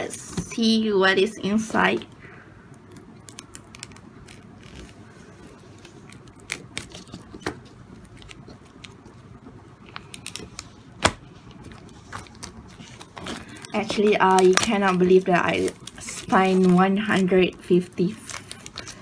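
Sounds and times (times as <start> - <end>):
plastic wrap crinkling: 9.9 - 19.0
scissors snipping plastic: 13.2 - 17.4.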